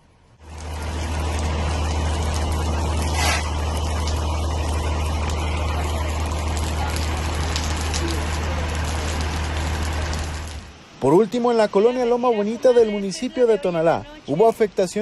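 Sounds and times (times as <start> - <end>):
vehicle engine idling: 0.0 - 11.0
constant hiss: 0.0 - 15.0.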